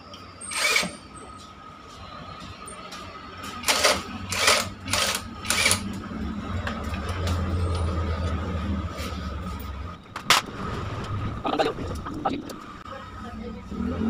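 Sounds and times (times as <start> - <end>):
impact wrench bursts: 0.5 - 1.0, 3.6 - 5.9.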